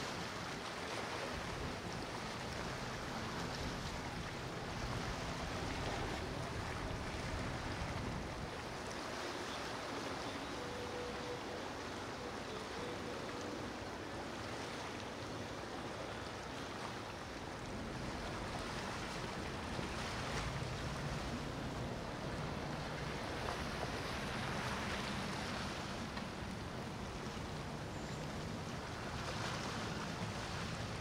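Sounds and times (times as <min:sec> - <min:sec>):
water rushing along hulls: 0:00.0 - 0:31.0.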